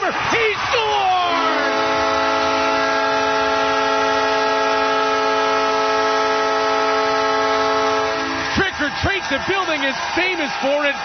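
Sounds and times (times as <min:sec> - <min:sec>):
arena goal horn blast: 0:01.1 - 0:09.4.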